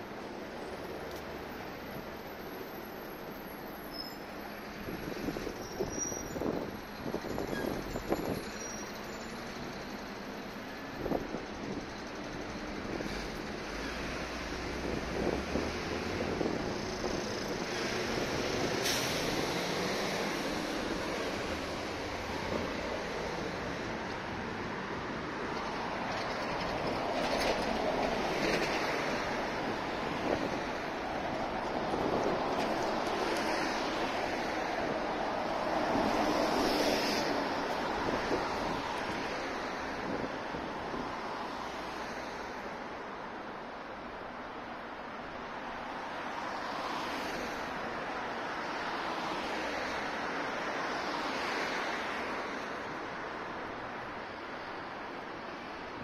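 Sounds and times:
cars driving past: 0:11.0 - 0:42.9, 0:45.8 - 0:56.0.

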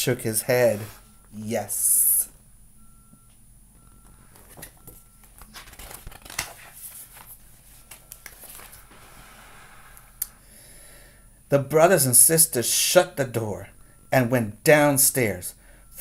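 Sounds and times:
paper pages rustling: 0:04.3 - 0:10.1.

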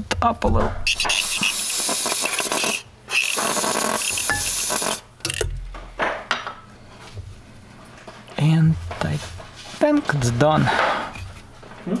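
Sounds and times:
aerosol spray hissing: 0:00.9 - 0:05.0.

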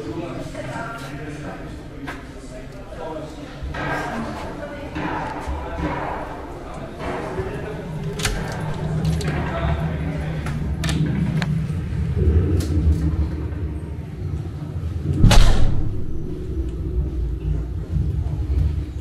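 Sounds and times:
low rumble: 0:07.3 - 0:19.0
loud boom: 0:12.0 - 0:17.6.

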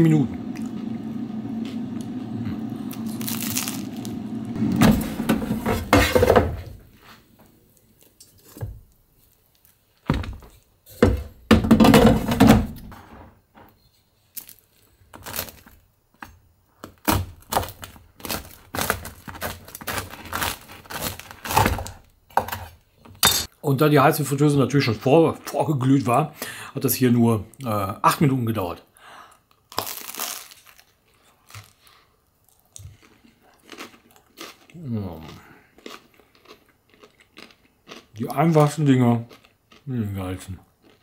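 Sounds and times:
air fryer fan running: 0:00.0 - 0:06.6
knife sawing crusty bread: 0:18.2 - 0:21.7.

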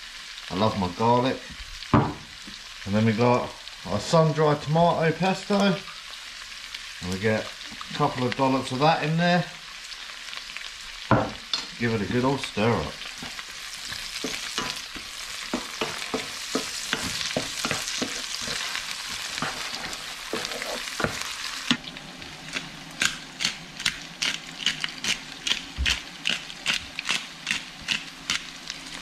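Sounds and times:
vegetables sizzling in a frying pan: 0:00.0 - 0:29.0
wooden spatula scraping and knocking: 0:13.1 - 0:21.8.

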